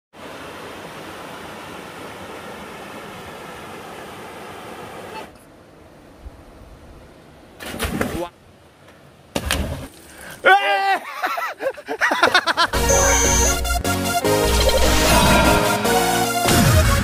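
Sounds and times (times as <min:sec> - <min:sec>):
stream rushing over rocks: 0:00.2 - 0:05.3.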